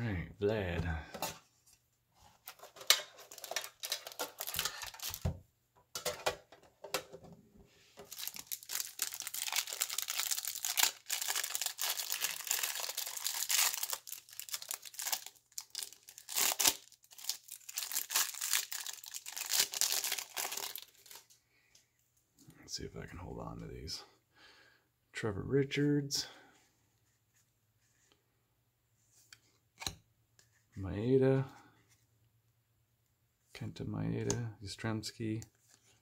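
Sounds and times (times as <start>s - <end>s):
cellophane wrapper crinkling and tearing: 2.5s - 5.3s, 8.0s - 21.3s.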